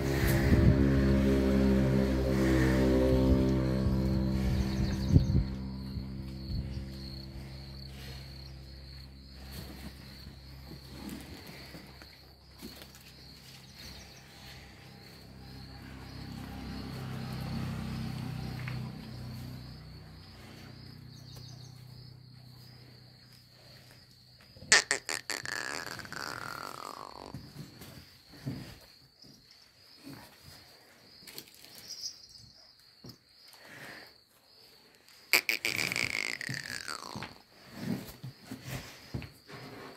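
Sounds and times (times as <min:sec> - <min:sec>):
low hum: 0:00.0 - 0:10.7
crickets chirping: 0:00.0 - 0:39.9.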